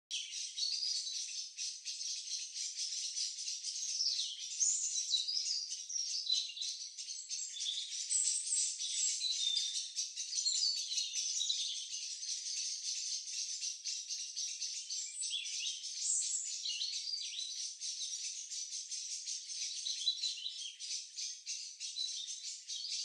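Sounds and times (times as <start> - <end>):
songbirds singing chorus: 0.1 - 23.0.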